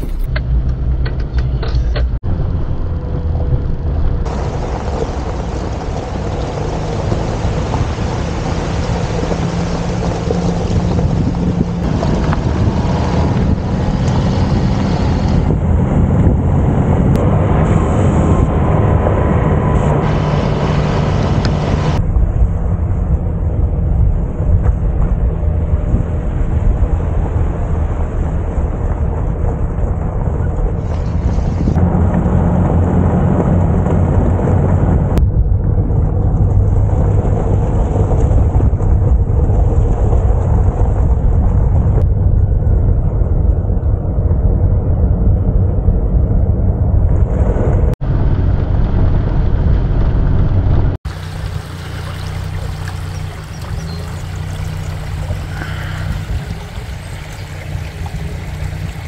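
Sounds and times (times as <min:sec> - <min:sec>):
van engine rumble: 0:00.0 - 0:59.0
wind buffeting microphone: 0:00.0 - 0:59.0
tyres on gravel: 0:04.3 - 0:14.3, 0:51.1 - 0:59.0.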